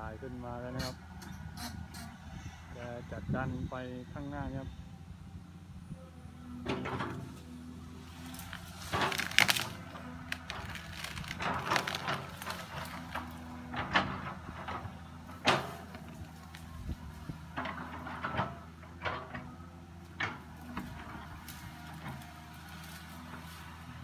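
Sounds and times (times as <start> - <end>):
excavator diesel engine under load: 0.0 - 24.0
wood cracking and snapping: 8.2 - 14.1.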